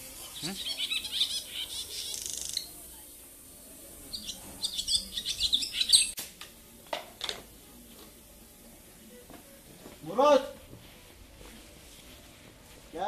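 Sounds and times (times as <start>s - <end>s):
small bird chirping: 0.2s - 2.8s, 4.0s - 6.2s.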